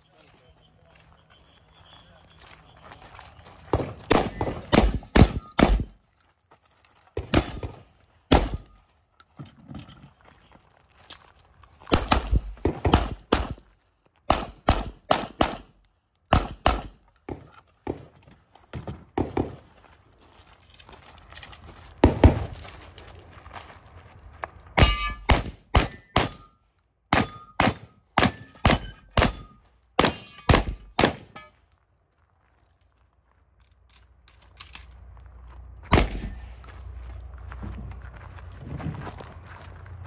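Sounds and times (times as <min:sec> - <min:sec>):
gunshots: 0:03.7 - 0:06.0, 0:07.2 - 0:08.7, 0:11.9 - 0:13.6, 0:14.3 - 0:15.7, 0:16.3 - 0:17.0, 0:24.8 - 0:26.5, 0:27.1 - 0:31.4, 0:35.9 - 0:36.4
steel targets ringing: 0:04.1 - 0:06.0, 0:24.8 - 0:31.6.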